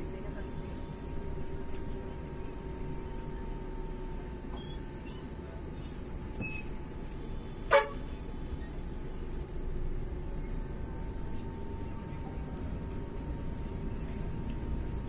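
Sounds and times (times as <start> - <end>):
bus engine rumbling: 0.0 - 15.0
road noise: 0.0 - 15.0
vehicle horn toot: 7.3 - 8.2.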